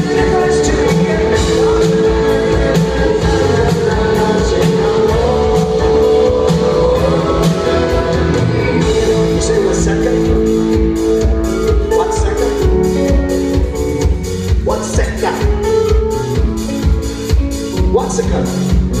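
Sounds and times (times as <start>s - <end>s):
male singer: 0.0s - 12.7s
drum kit: 0.0s - 19.0s
electric guitars: 0.0s - 19.0s.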